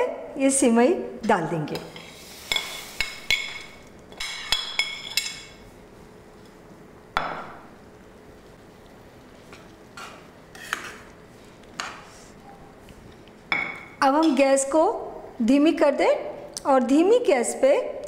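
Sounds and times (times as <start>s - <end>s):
soft stirring in pan: 7.4s - 14.4s.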